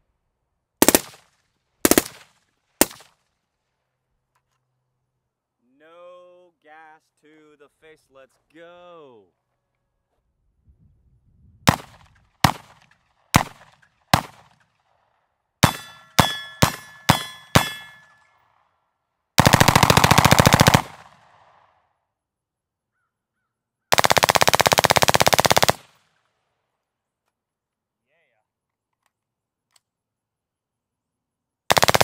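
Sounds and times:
full-auto gunfire bursts: 0.8s - 3.1s, 11.7s - 14.6s, 15.6s - 18.0s, 19.4s - 21.7s, 23.9s - 26.0s, 31.7s - 32.0s
rifle single shots: 0.8s - 3.2s, 11.7s - 14.8s, 15.6s - 18.2s, 19.4s - 21.7s.

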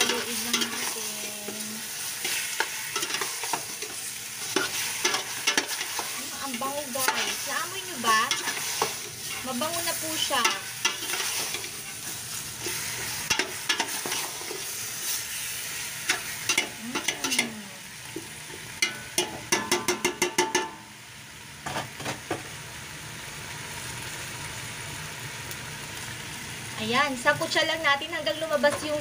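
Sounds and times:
chicken sizzling in a pot: 0.0s - 29.0s
metal utensil scraping a pot: 2.2s - 14.7s.

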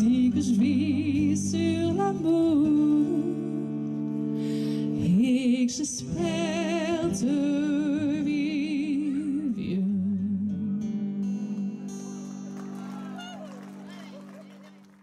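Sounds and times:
woman singing with vibrato: 0.0s - 3.7s, 5.0s - 11.2s
acoustic guitar chords: 0.0s - 14.2s.

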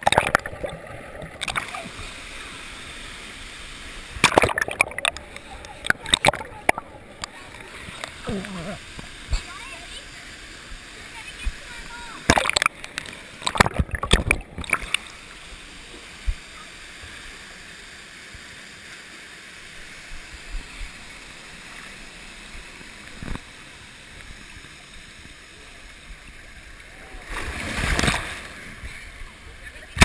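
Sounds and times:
pool water splashing: 0.0s - 30.0s
water rushing down a slide: 26.9s - 29.1s.

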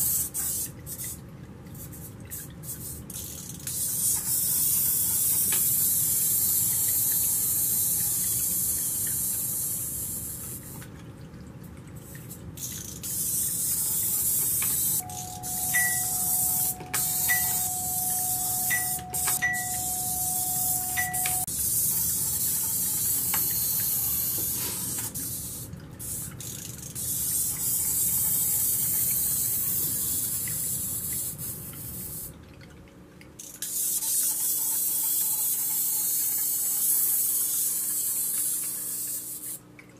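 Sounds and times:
water trickling in fountain: 0.0s - 39.9s
thin steady tone: 12.1s - 25.6s.

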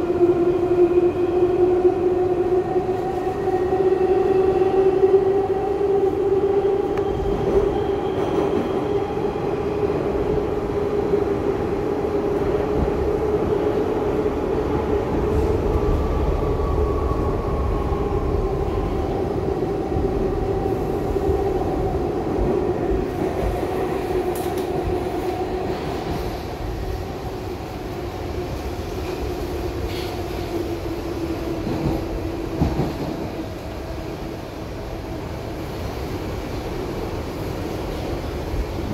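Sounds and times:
subway car hum: 0.0s - 38.9s
wheels rumbling on rail: 4.3s - 38.9s.

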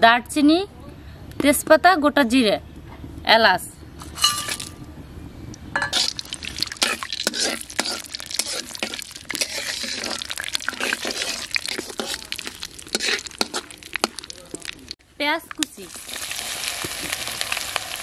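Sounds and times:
spices sizzling in hot oil: 5.8s - 18.0s
metal spatula stirring in wok: 5.9s - 14.9s.

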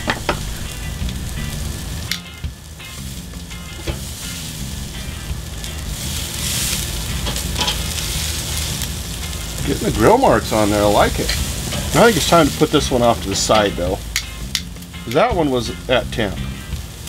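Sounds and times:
meat sizzling on grill: 0.0s - 17.0s
metal tongs clicking: 2.1s - 2.3s, 13.3s - 14.7s.

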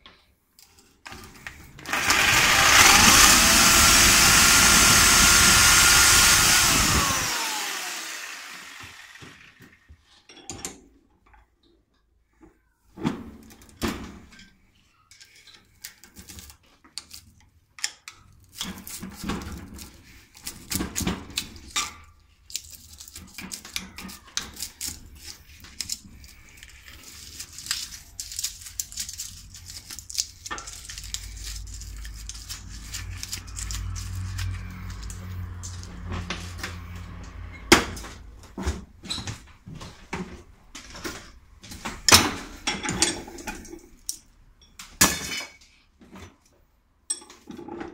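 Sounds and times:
metal clinking and scraping: 21.4s - 38.1s, 42.0s - 45.8s.

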